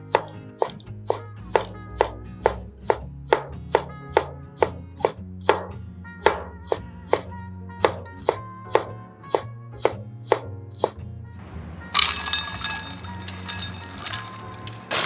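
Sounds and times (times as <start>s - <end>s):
soft background music: 0.0s - 15.0s
knife chopping on cutting board: 0.1s - 11.0s.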